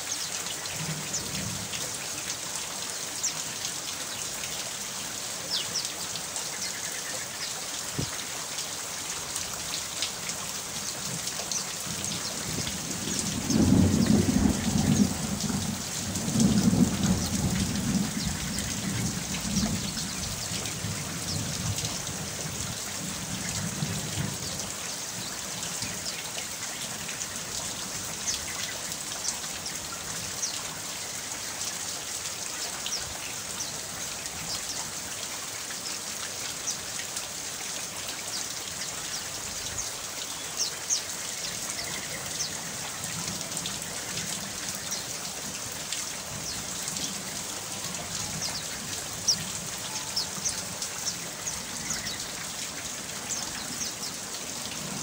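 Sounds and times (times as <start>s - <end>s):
steady rain: 0.0s - 55.0s
low thunder rumble: 12.5s - 20.4s.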